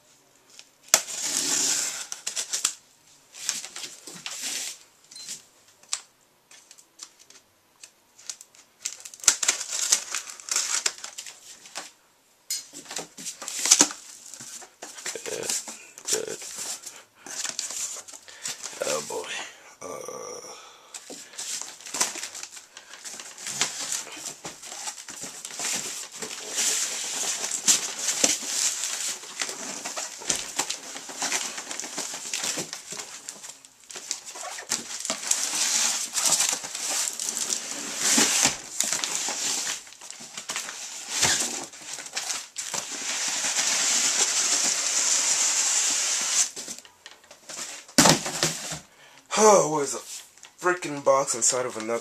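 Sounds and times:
cardboard flaps rustling: 46.6s - 48.9s.

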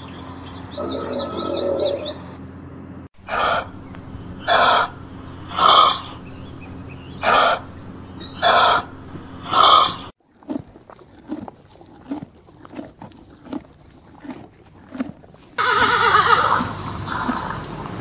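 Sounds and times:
high bird chirping: 0.0s - 2.4s.

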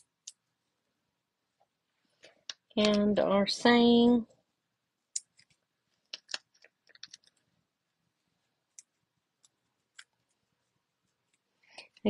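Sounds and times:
cardstock pieces clicking and tapping: 5.2s - 7.4s.

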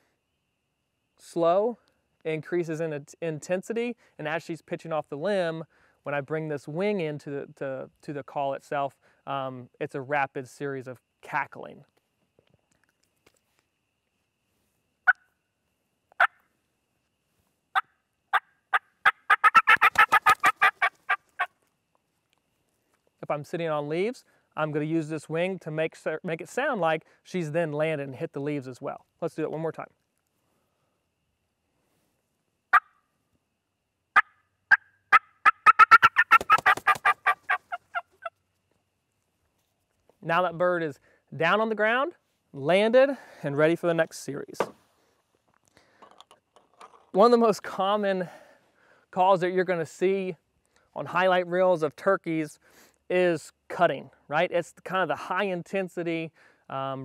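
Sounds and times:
turkey cackle on mouth call: 17.7s - 21.5s, 32.7s - 33.0s, 34.1s - 38.4s
wing beating: 18.3s - 21.6s, 34.2s - 38.4s.

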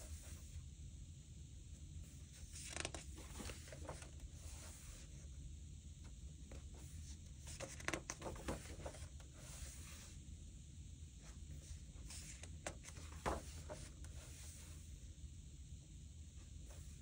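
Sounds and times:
paper pages rustling: 2.4s - 5.1s, 6.6s - 10.0s, 12.0s - 14.7s.

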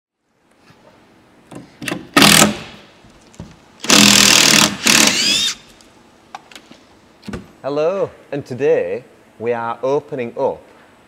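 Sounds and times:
cordless drill driving screws: 2.2s - 2.7s, 3.8s - 5.7s.

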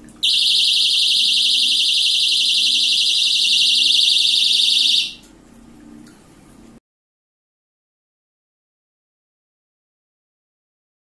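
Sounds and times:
warbling alarm buzzer: 0.2s - 5.3s.

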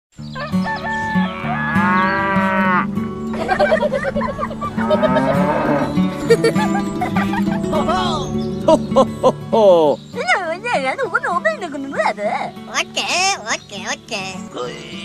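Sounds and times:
cow mooing: 1.2s - 3.0s, 4.8s - 6.0s.

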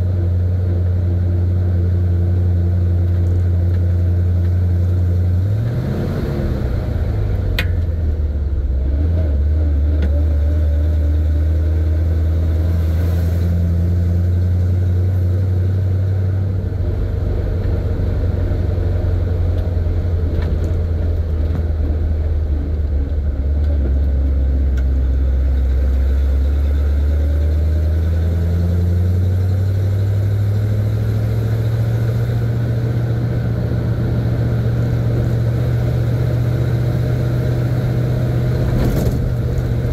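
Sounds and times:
truck engine running from cab: 0.0s - 39.9s.

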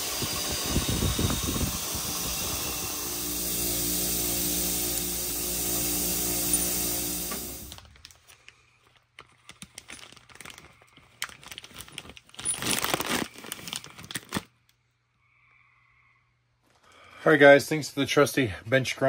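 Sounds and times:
plastic bag crinkling: 7.7s - 14.7s.

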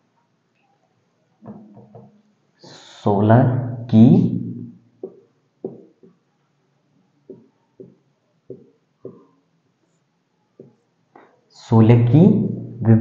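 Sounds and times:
marker writing on whiteboard: 5.0s - 6.2s, 7.3s - 11.4s.

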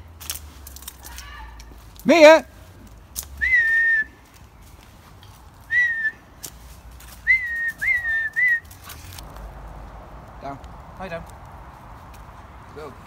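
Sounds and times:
high whistles: 3.3s - 4.2s, 5.6s - 6.3s, 7.1s - 9.0s.

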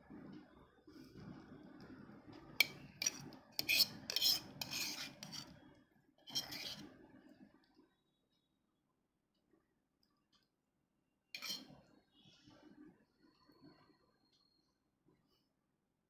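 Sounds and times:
soft rubbing of food: 2.4s - 7.0s, 11.4s - 11.7s
metal spoon scraping dishes: 2.6s - 5.6s, 6.3s - 6.8s, 11.4s - 11.7s.

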